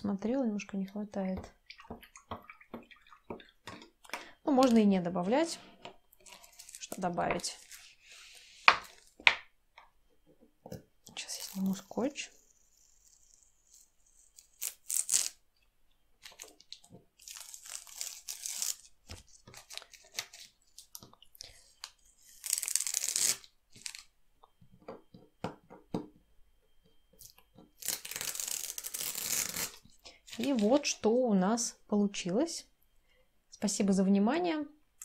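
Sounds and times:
masking tape ripping off paper: 12.6 - 15.4, 17.2 - 20.9, 22.2 - 24.1, 27.8 - 29.8.

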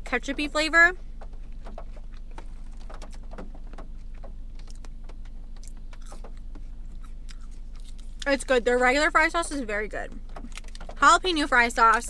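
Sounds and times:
low hum inside car: 0.0 - 12.0
chewing crunches: 1.3 - 8.5.

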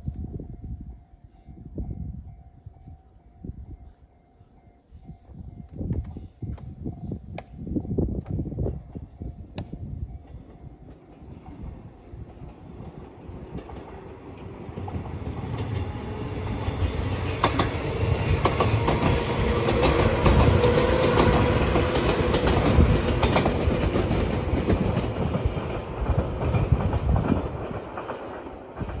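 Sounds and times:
electric train passing: 0.0 - 29.0
wheels clacking over rail joints: 8.2 - 29.0.

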